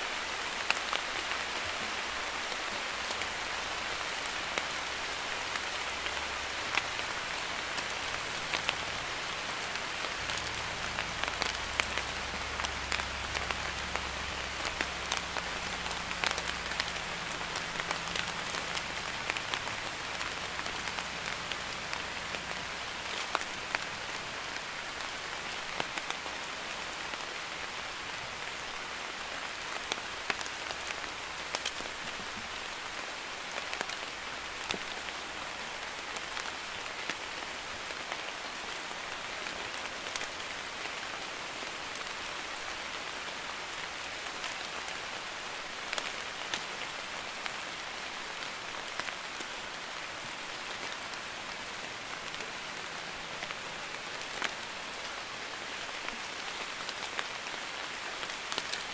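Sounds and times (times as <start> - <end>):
light rain hissing: 0.0 - 58.9
raindrop ticks: 7.7 - 24.6, 29.7 - 32.5.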